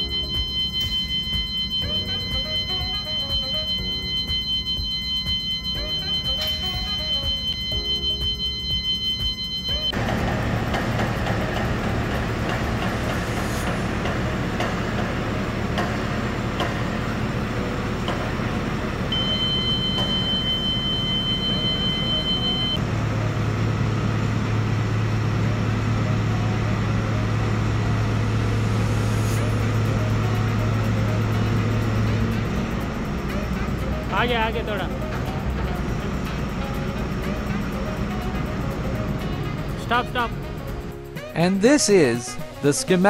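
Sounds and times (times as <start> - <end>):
high-pitched beep: 0.0 - 10.0, 19.1 - 22.8
diesel engine running: 0.0 - 41.4.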